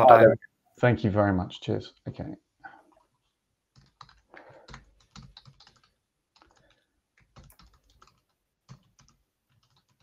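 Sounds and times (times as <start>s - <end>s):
keyboard typing: 3.7s - 10.0s.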